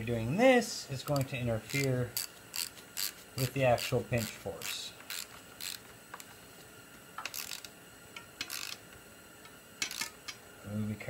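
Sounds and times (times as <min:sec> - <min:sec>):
ratchet wrench clicking: 0:01.0 - 0:06.3, 0:07.2 - 0:08.8, 0:09.8 - 0:10.4.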